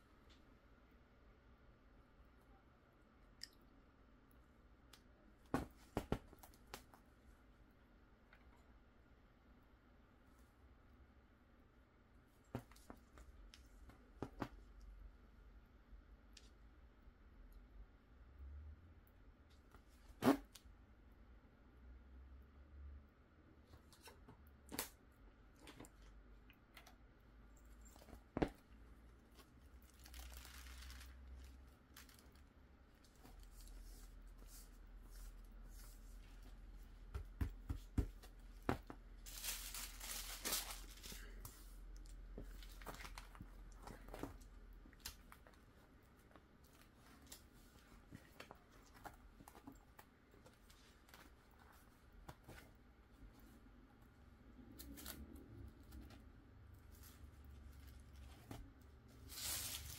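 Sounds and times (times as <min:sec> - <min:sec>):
plastic sleeve pages rustling: 0:29.4 - 0:34.6, 0:39.2 - 0:41.4, 0:59.2 - 0:59.9.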